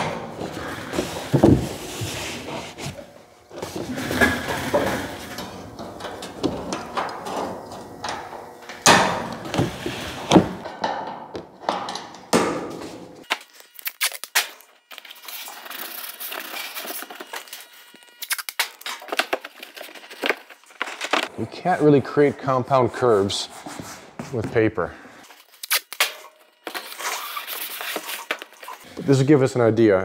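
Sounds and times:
masking tape pulled and torn: 13.3s - 21.3s, 25.3s - 28.8s.

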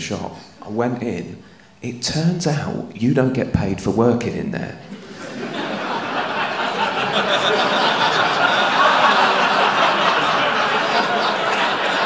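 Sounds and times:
audience laughing: 4.8s - 12.0s.

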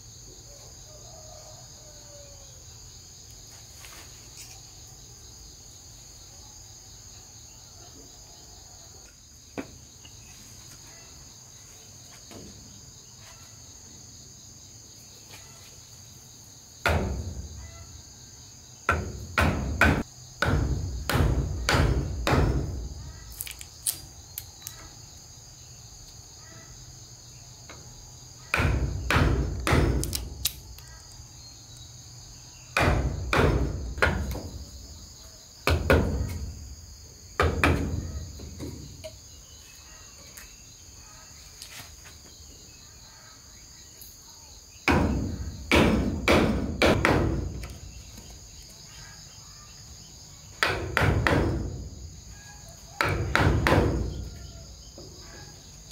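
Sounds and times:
insects droning: 0.0s - 55.9s
hammer striking timber: 16.8s - 17.4s, 18.9s - 22.8s, 28.5s - 30.2s, 32.8s - 34.6s, 37.4s - 38.8s, 44.9s - 47.7s, 50.6s - 51.7s, 53.0s - 54.1s.

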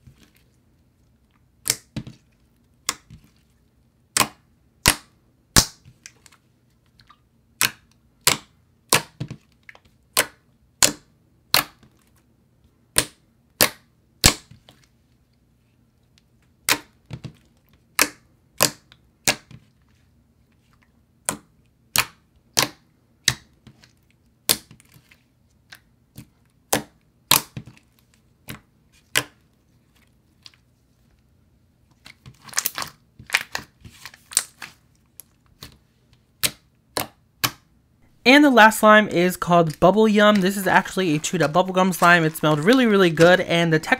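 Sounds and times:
slime clicking and popping: 1.6s - 2.0s, 4.1s - 5.8s, 7.6s - 9.2s, 10.1s - 11.8s, 12.9s - 14.5s, 21.2s - 23.5s.

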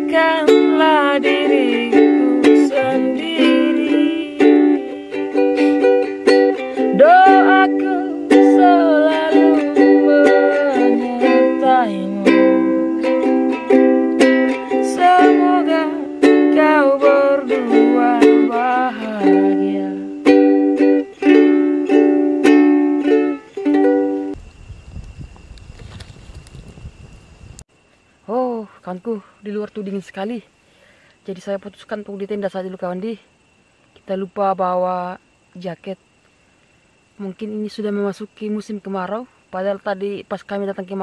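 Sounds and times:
ukulele strumming: 0.0s - 24.4s
faint outdoor noise: 0.0s - 41.0s
man singing: 1.2s - 5.0s.

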